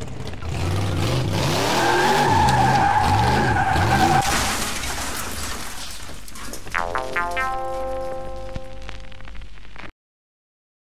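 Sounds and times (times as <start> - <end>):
car tyres screeching: 0.2 - 4.3
car engine revving: 0.4 - 4.2.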